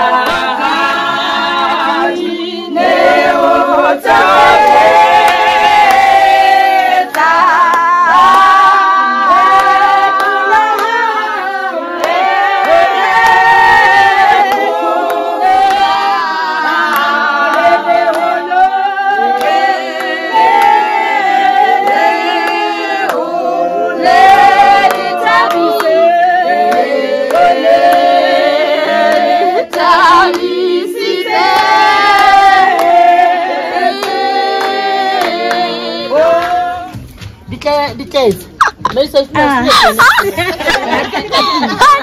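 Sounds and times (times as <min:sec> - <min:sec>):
people clapping: 0:00.0 - 0:37.6, 0:38.2 - 0:42.0
women singing a church song: 0:00.0 - 0:37.6, 0:38.2 - 0:42.0.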